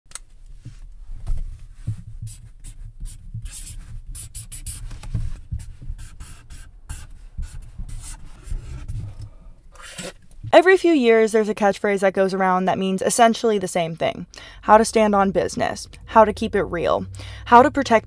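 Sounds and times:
dull bumps of paper handling: 0.6s - 9.2s
marker squeaking on paper: 2.2s - 10.2s.

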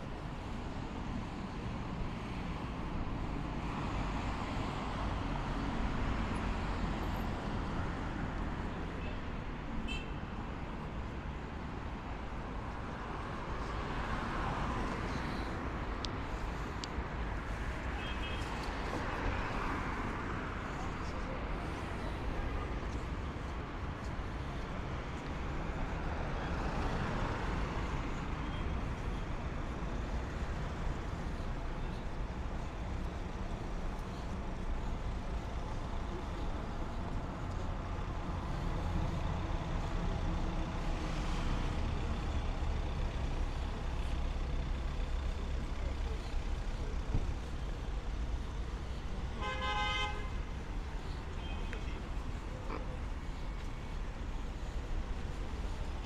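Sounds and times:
traffic engine rumble: 0.0s - 56.0s.

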